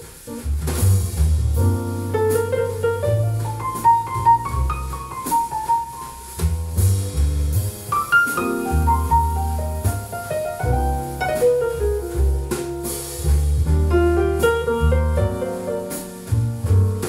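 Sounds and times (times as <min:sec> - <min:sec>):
deep bass notes: 0:00.3 - 0:17.0
piano lines: 0:01.5 - 0:17.0
jazz ballad over loudspeakers: 0:08.3 - 0:17.0.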